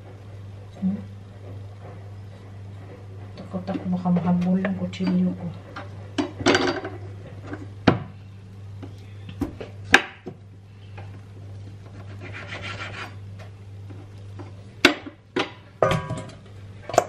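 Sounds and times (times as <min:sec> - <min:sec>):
steady low hum: 0:00.0 - 0:17.0
knife scraping: 0:11.9 - 0:13.2.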